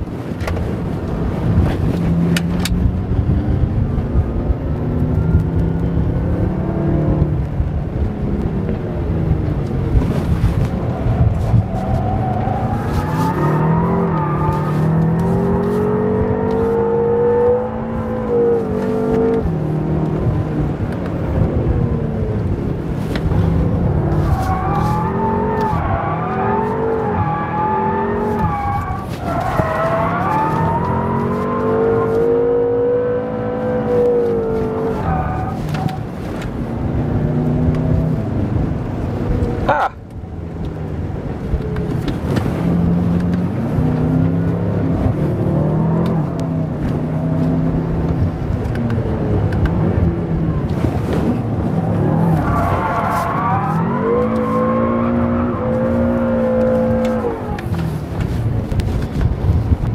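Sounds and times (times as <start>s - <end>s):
car engine revving hard: 10.2s - 21.5s, 22.4s - 38.9s, 49.1s - 58.2s.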